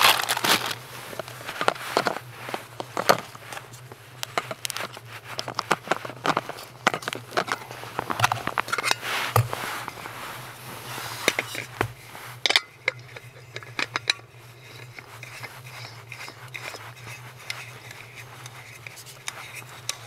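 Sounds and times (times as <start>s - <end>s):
metal stove parts clicking: 6.2s - 9.0s, 12.4s - 20.0s.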